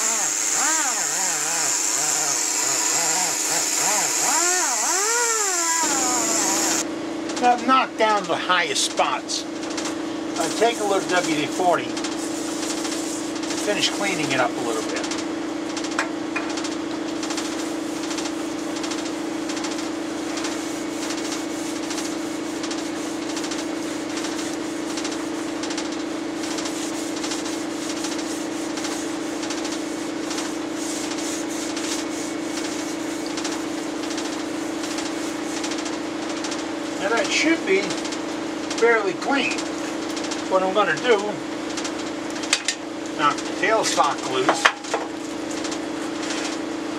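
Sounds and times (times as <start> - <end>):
rag rubbing on metal: 0.0 - 6.8, 10.4 - 15.0, 17.4 - 25.7, 26.4 - 36.0
steady low hum: 0.0 - 46.9.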